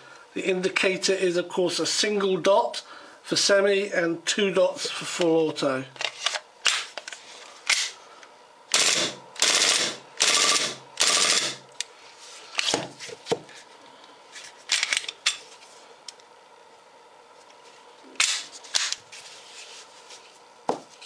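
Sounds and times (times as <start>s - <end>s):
airsoft pistol full auto bursts: 8.7s - 11.6s.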